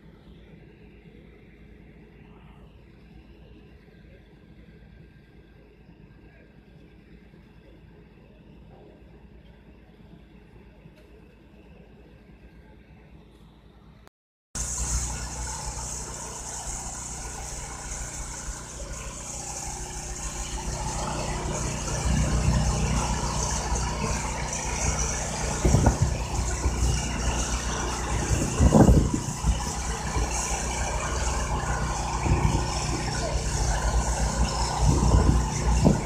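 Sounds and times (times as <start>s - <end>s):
crane diesel engine running: 14.6s - 36.0s.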